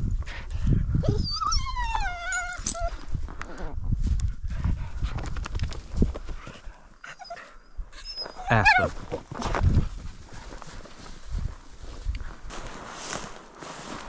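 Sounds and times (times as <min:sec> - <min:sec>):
dog whining: 0:01.0 - 0:03.0, 0:07.0 - 0:09.0
rustling: 0:08.9 - 0:14.0.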